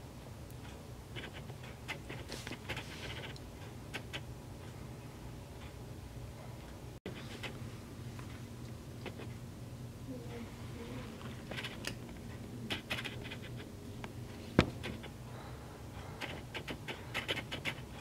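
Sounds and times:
steady low hum: 0.0 - 18.0
light scratches and clicks: 0.6 - 4.3, 11.2 - 15.1, 16.2 - 18.0.

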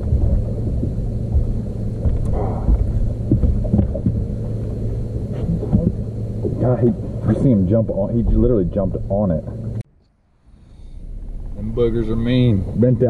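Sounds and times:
wind rumbling on microphone: 0.0 - 9.8.

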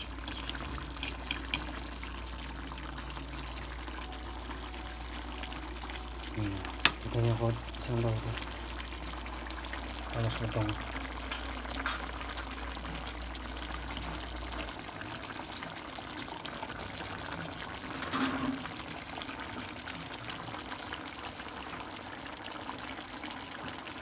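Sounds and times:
stew simmering and bubbling: 0.0 - 24.0.

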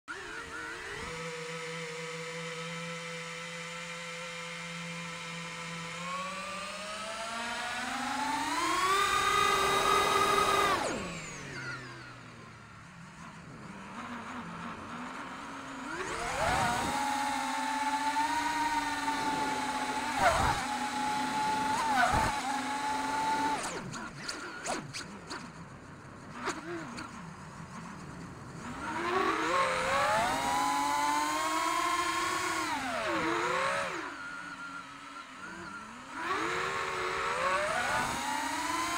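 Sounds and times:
quadcopter motors whining: 0.1 - 38.9.

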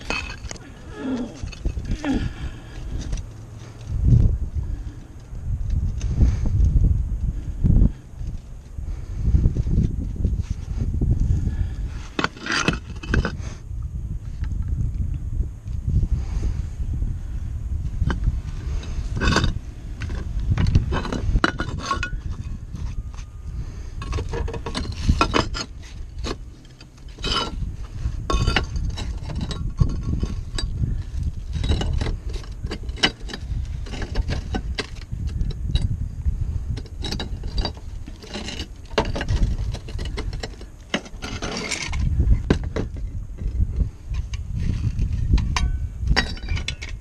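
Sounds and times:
roof tile pieces clinking: 0.0 - 2.2, 12.2 - 13.4, 19.1 - 23.3, 24.0 - 27.6, 28.2 - 35.9, 36.7 - 43.1, 45.2 - 47.0
wind buffeting microphone: 0.0 - 47.0.

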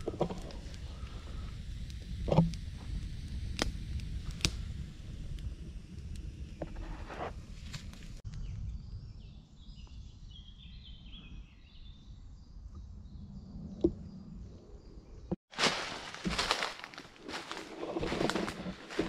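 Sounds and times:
campfire crackling: 0.0 - 8.3, 15.6 - 19.0.

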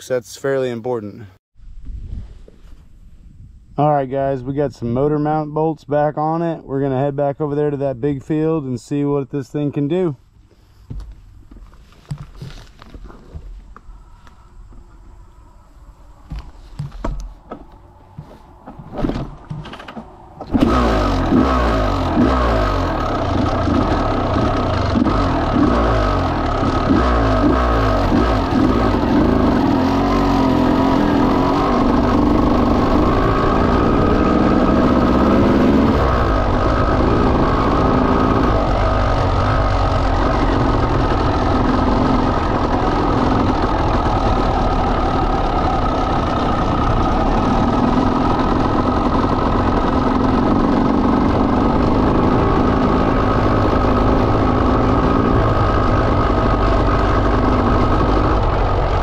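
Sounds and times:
motorcycle engine revving: 16.2 - 59.0.

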